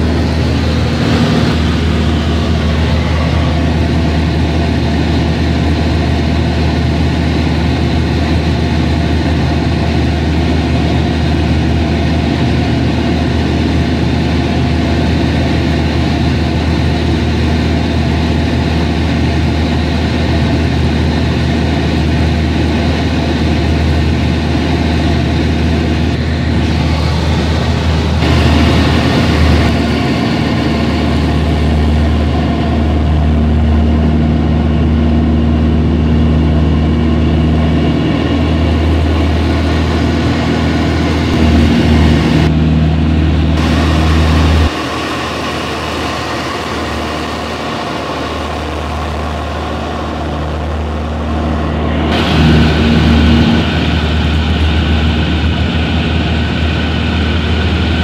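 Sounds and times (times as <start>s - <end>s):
rushing air: 0.0s - 5.7s, 25.9s - 33.5s, 36.8s - 58.0s
airplane engine droning: 0.0s - 58.0s.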